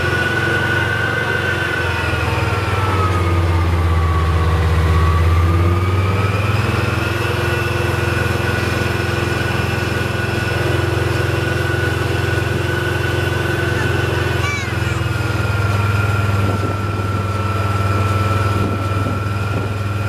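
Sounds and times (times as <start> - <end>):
tank diesel engine running: 0.0 - 20.0.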